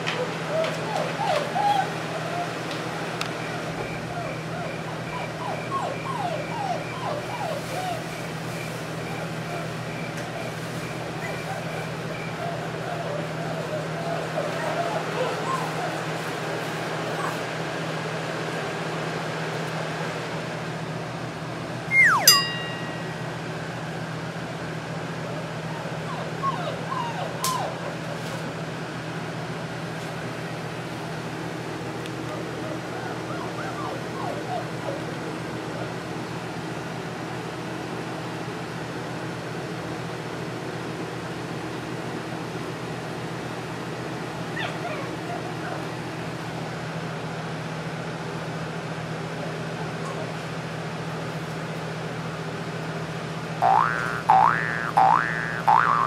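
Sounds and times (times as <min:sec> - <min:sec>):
box fan whirring: 0:00.0 - 0:26.4
puppies yipping: 0:00.2 - 0:02.7, 0:03.4 - 0:17.4, 0:21.9 - 0:23.1, 0:25.6 - 0:28.1, 0:32.2 - 0:35.9, 0:44.4 - 0:46.0
steady low hum: 0:53.0 - 0:56.0.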